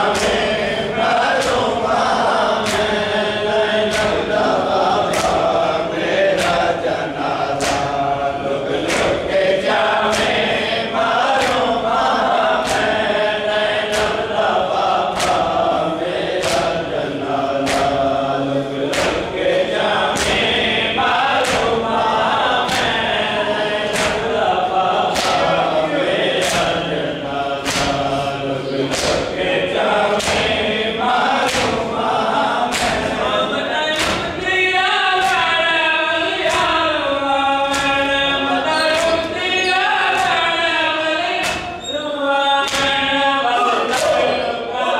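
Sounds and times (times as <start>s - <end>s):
hands slapping chests: 0.0s - 28.2s, 28.8s - 34.5s, 35.2s - 35.6s, 36.3s - 36.9s, 37.6s - 40.4s, 41.4s - 41.8s, 42.6s - 43.0s, 43.9s - 44.2s
men chanting in unison: 0.0s - 44.9s.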